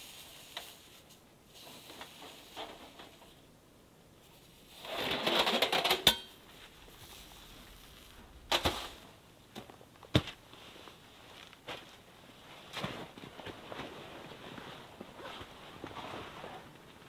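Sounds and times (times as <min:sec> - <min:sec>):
tent fabric rustling: 0:06.4 - 0:09.2, 0:10.4 - 0:17.0.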